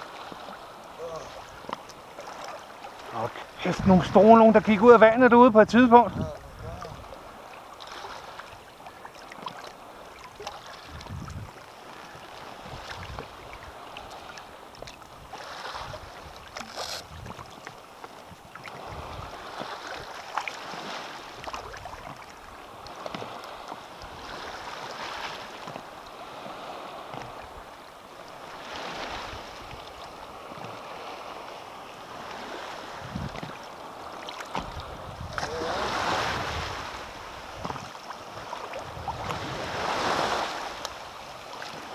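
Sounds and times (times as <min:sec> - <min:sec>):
seawater lapping and sloshing: 0:00.0 - 0:41.9
wind on microphone: 0:03.2 - 0:04.8, 0:05.6 - 0:07.3, 0:10.8 - 0:14.3, 0:15.1 - 0:17.6, 0:18.3 - 0:20.1, 0:32.1 - 0:33.6, 0:34.5 - 0:41.1.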